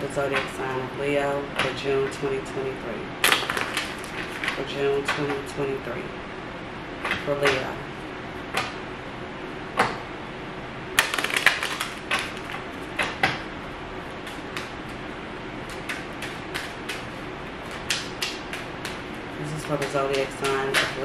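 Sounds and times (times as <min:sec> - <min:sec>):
cards being shuffled: 0:03.2 - 0:05.4, 0:11.0 - 0:13.4, 0:14.0 - 0:15.0, 0:15.6 - 0:21.0.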